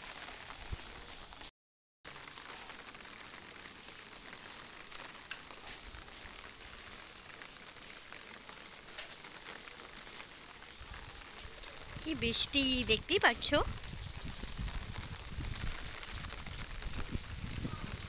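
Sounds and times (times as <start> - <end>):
heavy rain on umbrella and concrete: 0.0 - 1.5, 2.1 - 18.0.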